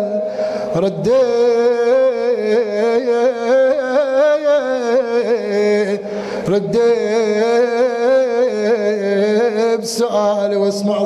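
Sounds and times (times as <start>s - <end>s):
man chanting melismatic note: 0.0s - 11.0s
man taking a breath: 0.2s - 0.8s, 6.0s - 6.5s.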